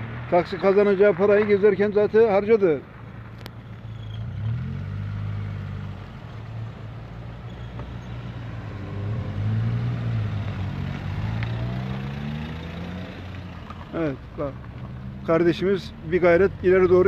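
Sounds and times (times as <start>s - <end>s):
car engine accelerating: 3.3s - 17.0s.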